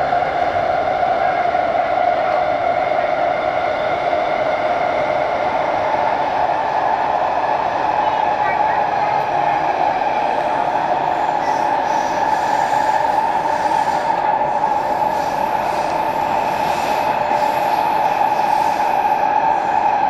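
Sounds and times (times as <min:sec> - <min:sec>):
metro car running noise: 0:00.0 - 0:20.0.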